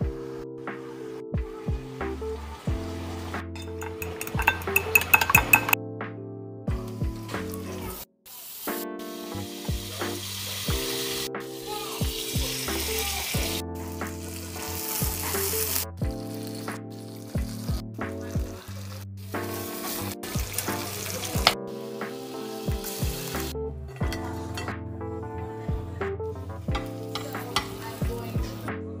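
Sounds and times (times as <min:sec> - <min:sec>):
background music with beat: 0:00.0 - 0:07.8, 0:08.7 - 0:18.7, 0:19.3 - 0:29.0
butter sizzling in frying pan: 0:03.2 - 0:05.8, 0:08.4 - 0:17.8, 0:18.4 - 0:23.5, 0:26.8 - 0:28.3.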